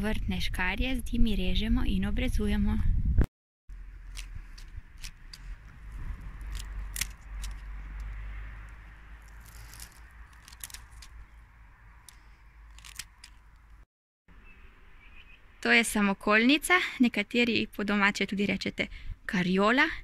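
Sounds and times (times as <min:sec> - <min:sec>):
stems and leaves rustling: 0:03.7 - 0:13.8
secateurs snipping twigs: 0:03.8 - 0:11.4, 0:12.0 - 0:13.8.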